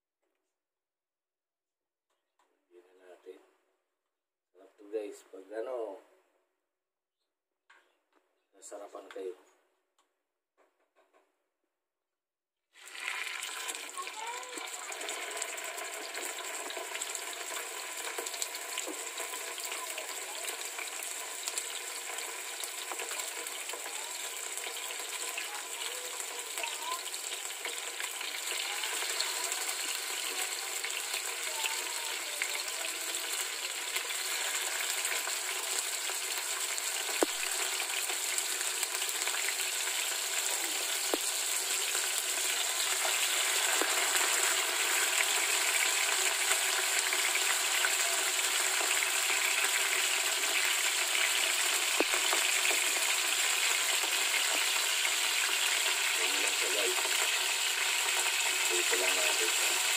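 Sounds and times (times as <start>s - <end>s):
fish sizzling in hot oil: 12.8s - 59.9s.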